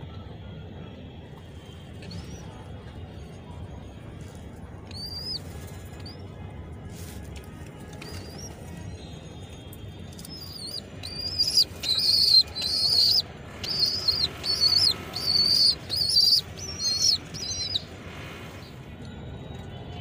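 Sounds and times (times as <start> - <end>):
pigeon squabs squeaking: 4.9 - 6.2, 8.0 - 8.7, 10.2 - 17.9.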